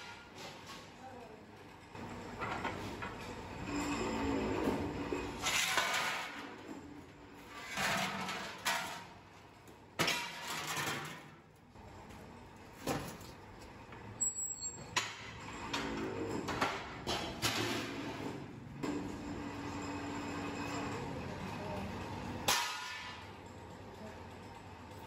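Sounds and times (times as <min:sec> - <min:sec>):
steel sheet grinding in rolling machine: 0:02.0 - 0:09.2, 0:17.4 - 0:23.4.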